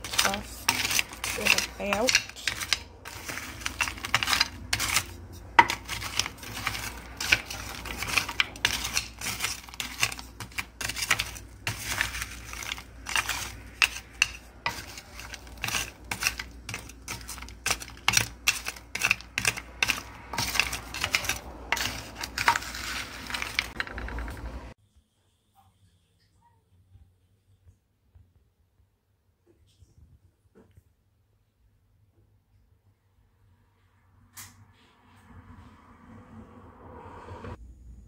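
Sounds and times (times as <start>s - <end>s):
wooden spatula scraping glass dish: 0.0s - 24.7s.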